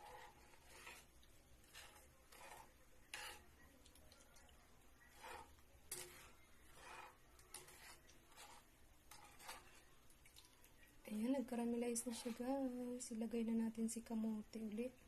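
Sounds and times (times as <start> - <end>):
metal spoon scraping in a wok: 0.0 - 3.6, 5.1 - 9.9, 11.9 - 12.8.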